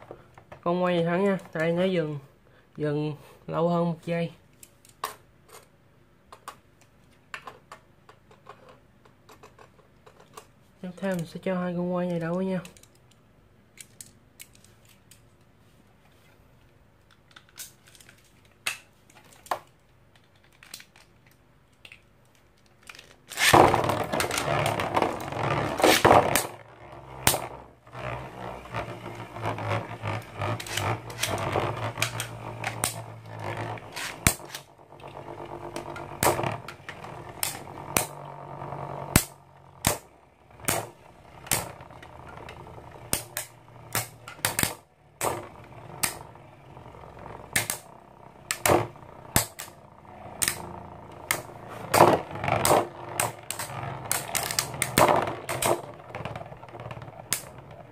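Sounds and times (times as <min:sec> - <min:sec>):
spinning tops scraping on plastic: 0:17.3 - 0:57.9
spinning tops clacking together: 0:22.9 - 0:27.4, 0:33.8 - 0:34.7, 0:39.0 - 0:45.4.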